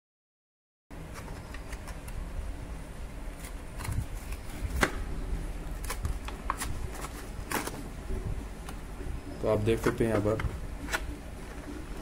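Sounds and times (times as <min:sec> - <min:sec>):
low steady rumble: 0:02.1 - 0:12.0
sharp plastic crack: 0:03.4 - 0:05.0, 0:05.7 - 0:07.8, 0:09.8 - 0:11.2
plastic packaging crackling: 0:05.6 - 0:07.9.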